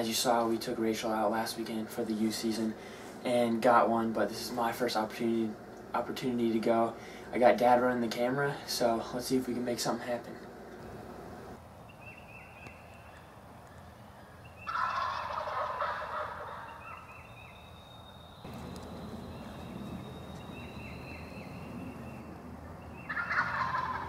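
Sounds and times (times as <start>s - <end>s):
turkey gobbling: 14.6s - 17.5s, 22.9s - 24.0s.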